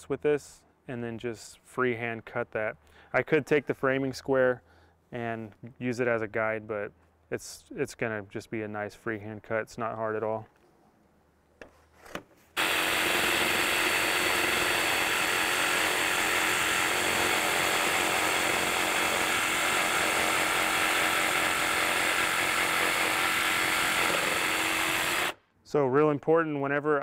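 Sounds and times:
jigsaw cutting wood: 12.6 - 25.4.

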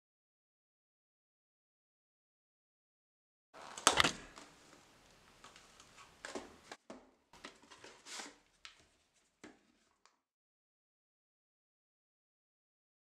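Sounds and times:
card rustling and crinkling: 7.4 - 10.0.

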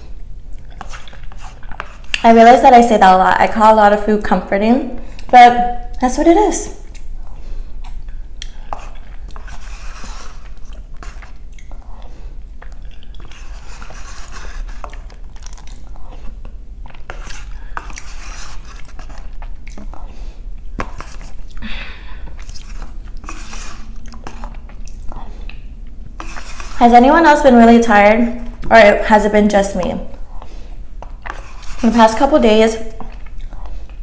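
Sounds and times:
person chewing wetly: 0.0 - 2.2, 6.8 - 26.8, 30.2 - 31.8, 32.9 - 34.0.

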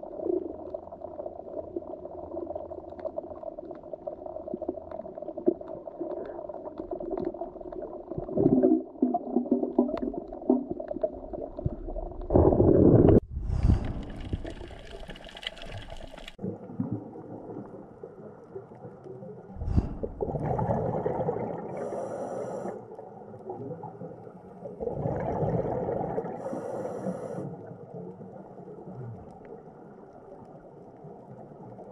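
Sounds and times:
muffled underwater rumble: 0.0 - 31.9
gurgling bubbles: 3.6 - 18.9, 19.5 - 22.3, 23.4 - 26.9.

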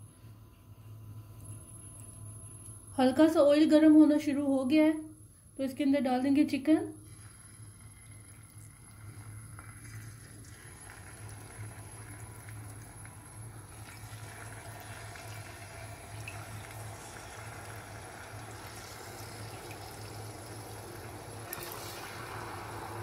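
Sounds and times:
steady low hum: 0.0 - 23.0
chicken sizzling in oil: 9.0 - 23.0.

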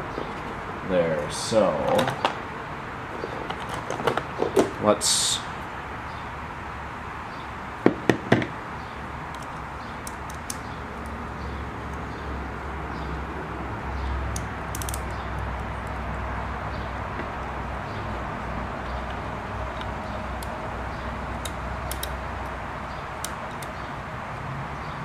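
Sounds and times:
sharp clicks: 9.3 - 11.2, 14.3 - 15.5, 21.3 - 23.8.

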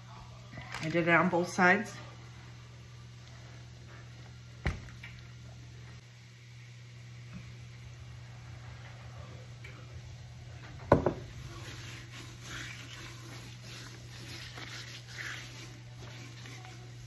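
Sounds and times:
hands rubbing seasoning on skin: 11.5 - 17.0.

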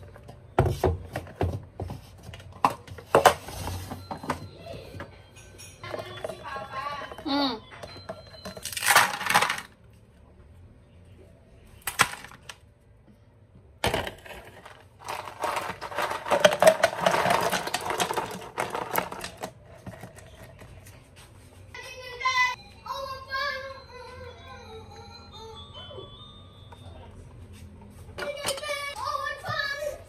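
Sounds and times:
small hard objects clattering: 8.0 - 9.7, 13.8 - 20.7.

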